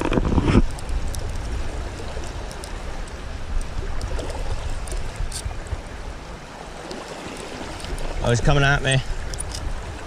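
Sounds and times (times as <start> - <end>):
creek rushing: 0.0 - 10.0
faint ticks: 0.6 - 5.8, 6.8 - 8.1.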